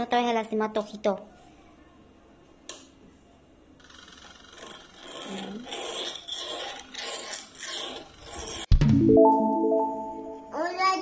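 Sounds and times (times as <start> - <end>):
hand tool scraping: 4.5 - 8.7.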